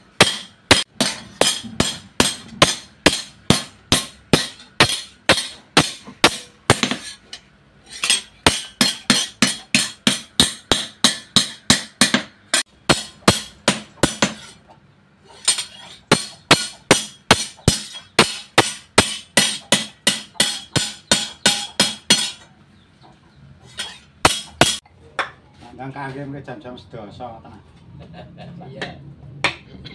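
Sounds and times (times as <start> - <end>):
hammer striking metal on anvil: 0.0 - 14.6, 15.4 - 22.5, 23.8 - 25.3.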